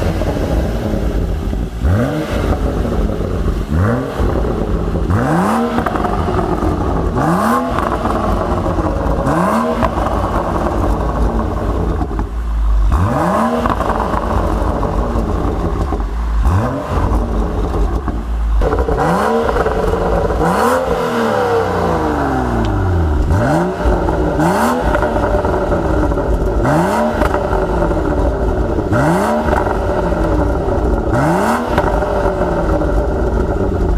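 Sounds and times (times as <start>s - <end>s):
car engine revving: 0.0s - 33.9s
exhaust pops: 0.0s - 33.9s.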